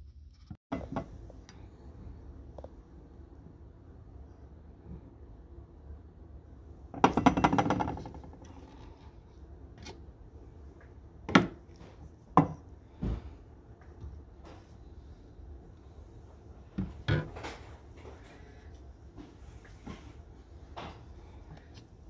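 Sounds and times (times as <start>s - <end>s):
glass and plastic knocks: 7.0s - 8.3s.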